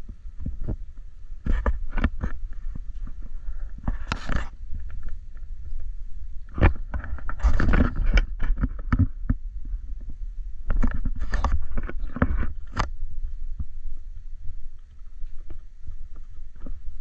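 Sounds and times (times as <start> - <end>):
steady low rumble: 0.0 - 17.0
camera handling rustle and knocks: 1.4 - 5.2, 6.5 - 9.4, 10.7 - 13.0.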